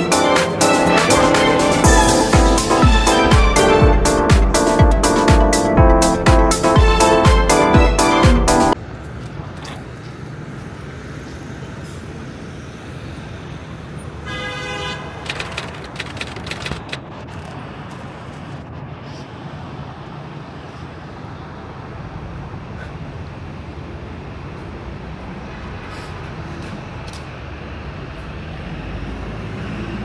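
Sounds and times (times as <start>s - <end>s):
horn toot: 0.0s - 8.8s
city background noise: 0.0s - 30.0s.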